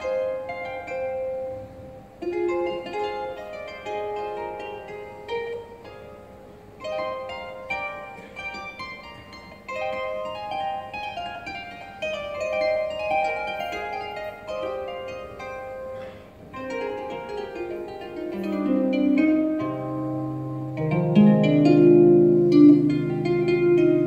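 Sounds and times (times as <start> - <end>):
harp plucked notes: 0.0 - 24.0
low harp notes ringing: 0.0 - 24.0.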